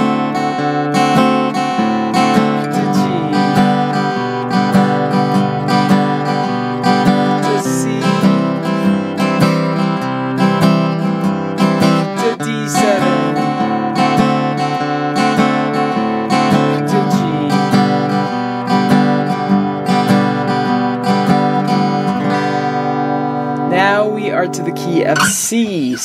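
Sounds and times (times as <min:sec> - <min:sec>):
acoustic guitar strumming: 0:00.0 - 0:26.0.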